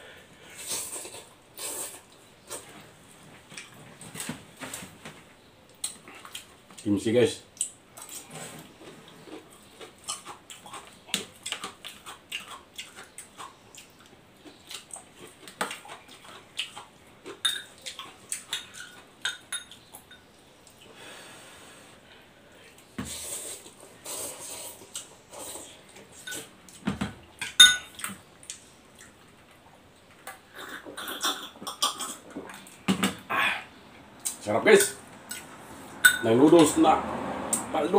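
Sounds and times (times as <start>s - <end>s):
chewing and slurping: 0.5s - 2.8s, 7.6s - 19.1s.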